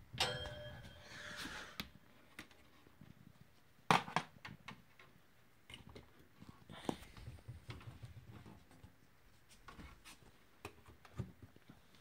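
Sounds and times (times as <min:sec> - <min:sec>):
ringing metal clank: 0:00.2 - 0:01.4.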